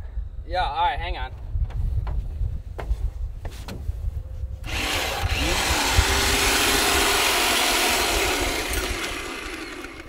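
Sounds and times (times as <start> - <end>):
wind rumbling on microphone: 0.0 - 9.4
electric winch motor whine: 4.6 - 10.0.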